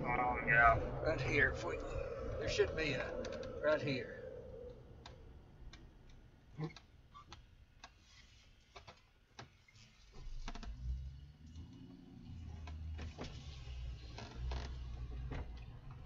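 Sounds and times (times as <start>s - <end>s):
low rumble: 0.0s - 6.3s.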